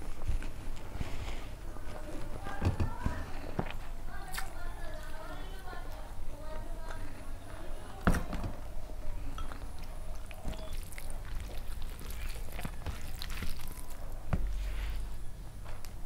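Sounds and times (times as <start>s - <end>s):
fingers squishing food: 0.1s - 6.1s, 9.3s - 15.2s.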